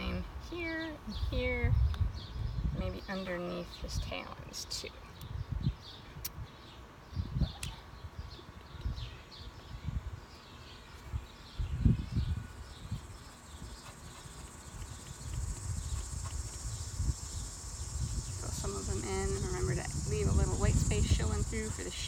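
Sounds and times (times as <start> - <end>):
high continuous insect trill: 8.7 - 22.0
insects chirping: 10.3 - 22.0
soft low rumbles: 11.7 - 22.0.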